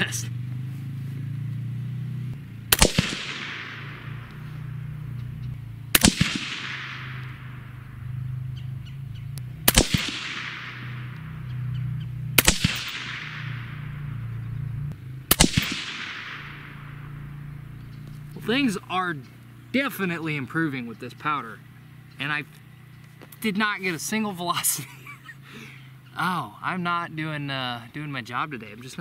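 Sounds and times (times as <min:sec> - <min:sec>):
suppressed rifle shots: 0:02.3 - 0:18.5.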